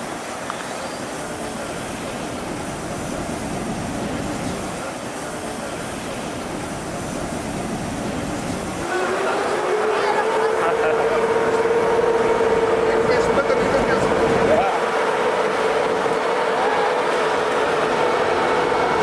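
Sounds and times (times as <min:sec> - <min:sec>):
locomotive rumble and hum: 0:06.4 - 0:19.0.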